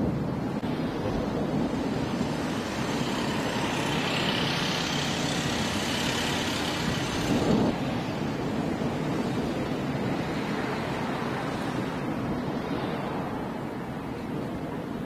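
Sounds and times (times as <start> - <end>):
volcano rumbling: 0.0 - 15.0
volcano hissing: 1.6 - 7.7.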